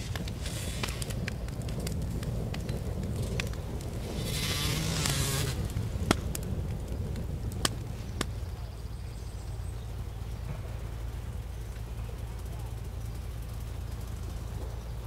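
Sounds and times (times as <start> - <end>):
campfire pops: 0.0 - 8.9
campfire hiss: 0.0 - 15.0
low outdoor rumble: 0.0 - 15.0.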